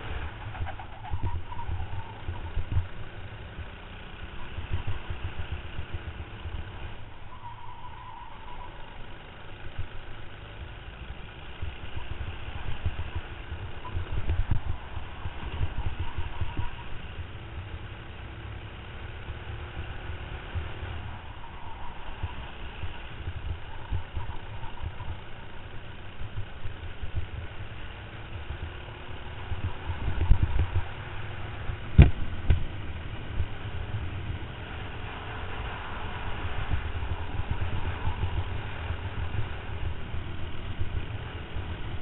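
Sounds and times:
wind buffeting: 0:00.0 - 0:03.3, 0:11.7 - 0:17.4, 0:19.8 - 0:27.5, 0:28.5 - 0:42.0
kart engine running: 0:00.0 - 0:42.0.

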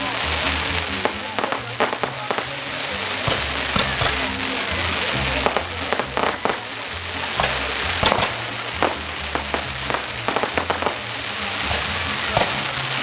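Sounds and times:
firework crackling: 0:00.0 - 0:13.0
firework shells banging: 0:03.2 - 0:04.4, 0:07.3 - 0:13.0.

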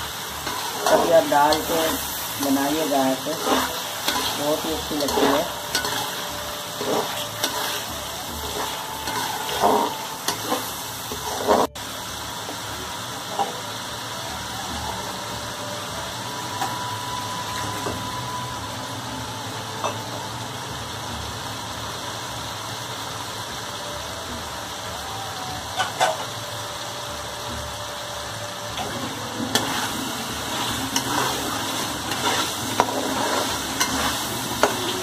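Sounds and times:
chicken sizzling in oil: 0:00.0 - 0:35.0
metal spatula scraping a pan: 0:00.2 - 0:11.8, 0:28.8 - 0:35.0.

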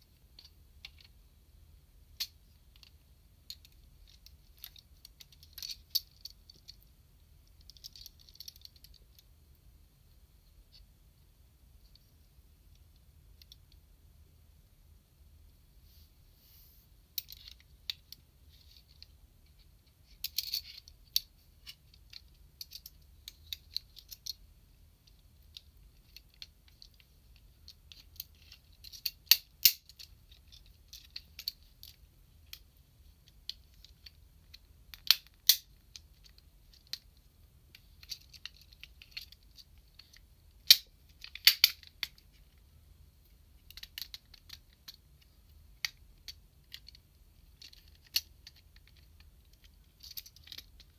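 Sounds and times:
plastic parts clicking and snapping: 0:02.2 - 0:06.8, 0:25.0 - 0:32.6, 0:33.4 - 0:37.1, 0:37.7 - 0:42.6, 0:43.6 - 0:50.9.

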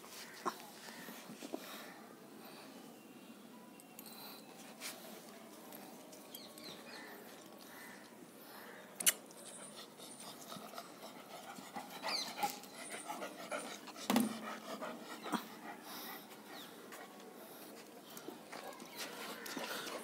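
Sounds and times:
dog panting: 0:09.5 - 0:17.9, 0:19.0 - 0:20.0.

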